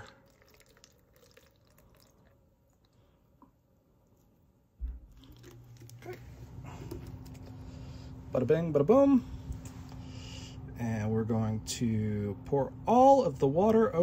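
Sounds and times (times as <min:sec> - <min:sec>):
water trickling into bottle: 0:00.0 - 0:02.4
steady low hum: 0:00.0 - 0:14.0.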